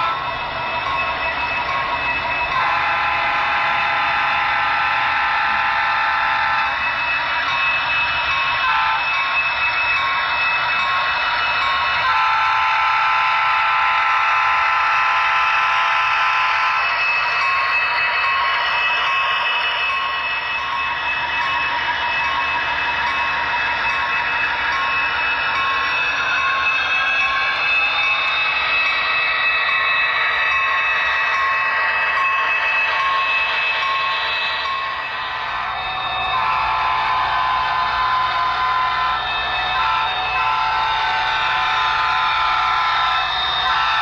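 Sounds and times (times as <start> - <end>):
repeating bell tones: 0.0 - 12.6, 13.2 - 44.0
model locomotive horn: 2.3 - 44.0.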